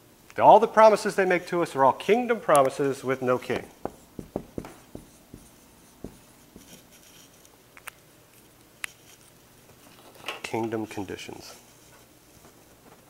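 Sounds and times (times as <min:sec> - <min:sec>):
marker writing on whiteboard: 0:03.2 - 0:07.4.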